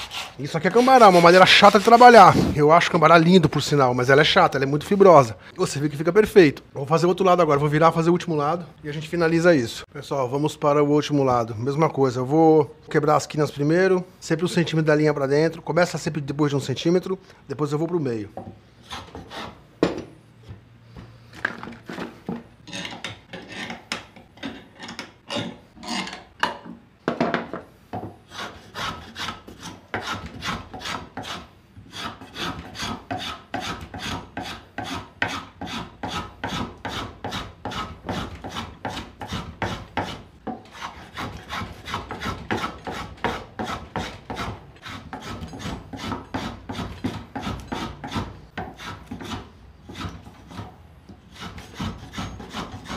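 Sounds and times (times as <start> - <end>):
hand plane shaving wood: 0.0 - 2.3, 28.3 - 50.7, 51.3 - 52.9.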